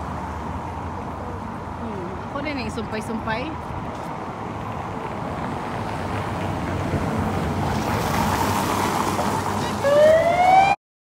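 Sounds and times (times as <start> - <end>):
rain on street: 4.9 - 10.7.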